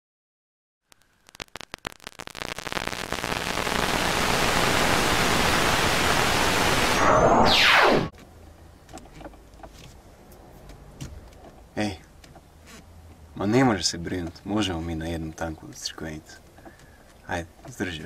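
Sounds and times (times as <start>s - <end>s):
television static hiss: 0.9s - 8.1s
fast falling sweep: 1.4s - 8.1s.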